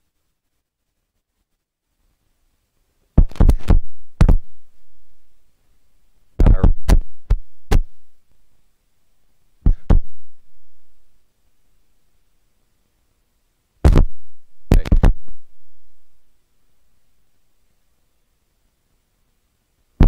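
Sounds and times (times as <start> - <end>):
microphone thumps: 3.2 - 4.7, 6.4 - 8.1, 9.6 - 10.4, 13.8 - 15.5.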